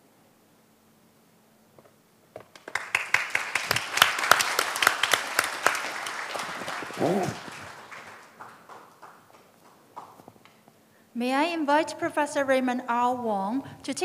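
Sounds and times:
audience applauding: 2.5 - 10.5.

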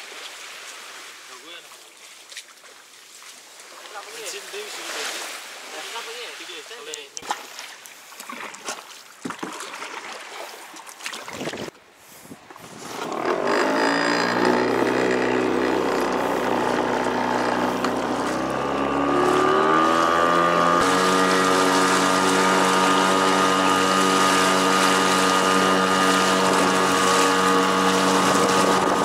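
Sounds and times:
paddle strokes splashing water: 0.0 - 29.0
small motor humming: 13.0 - 29.0.

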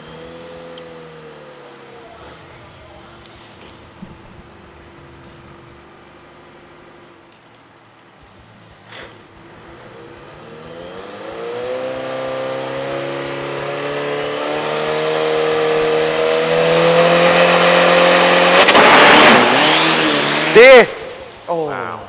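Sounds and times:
truck engine at full throttle: 0.0 - 7.4, 8.2 - 22.0
thin rising whine: 9.5 - 21.8
loud burst of noise: 16.7 - 21.7.

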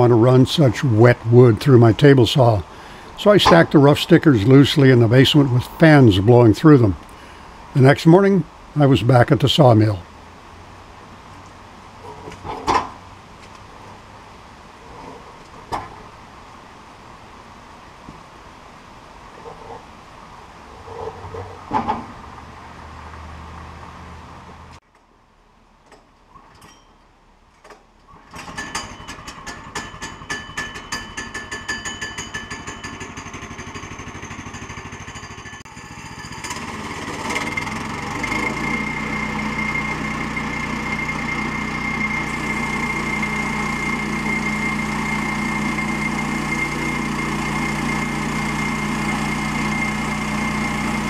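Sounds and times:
sawmill gasoline engine running: 0.0 - 7.0, 28.1 - 51.0.

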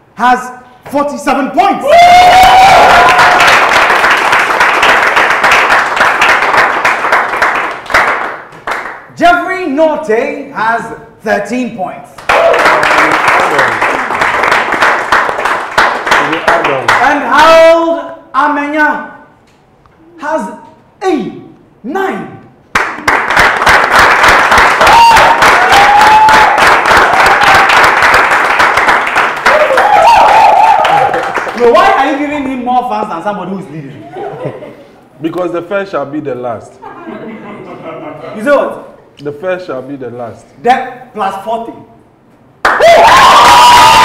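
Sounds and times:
audience applauding: 2.2 - 9.0, 12.2 - 17.2, 22.7 - 32.2, 42.6 - 44.0
hands clapping: 3.0 - 9.1, 12.2 - 17.2, 22.7 - 31.8, 42.6 - 43.9.

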